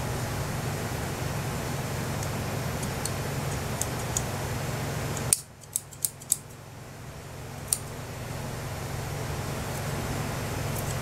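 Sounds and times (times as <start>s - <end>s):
steady low hum: 0.0s - 11.0s
scissors snipping: 5.2s - 6.5s, 10.7s - 11.0s.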